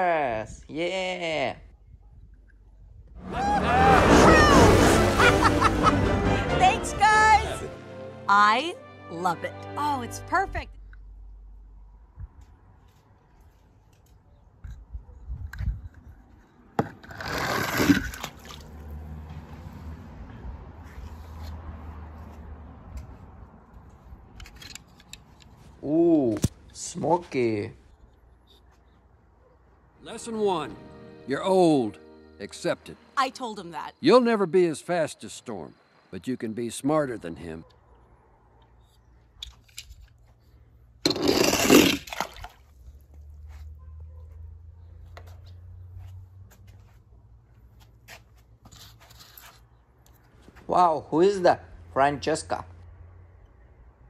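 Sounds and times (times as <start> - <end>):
toy car splashing into water: 17.1 - 18.8, 41.1 - 42.7.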